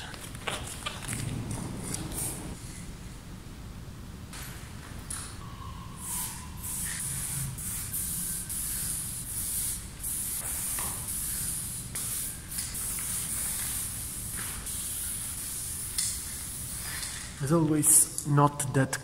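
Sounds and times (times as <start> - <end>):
spray paint can hissing: 6.0 - 17.4.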